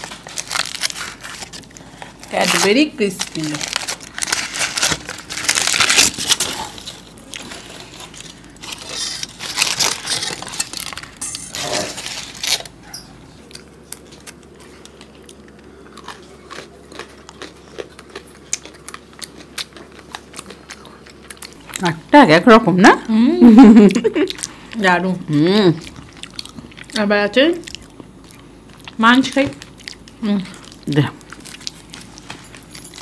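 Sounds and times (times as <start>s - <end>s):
crackling clicks of chewing: 12.6s - 21.9s, 25.8s - 33.0s.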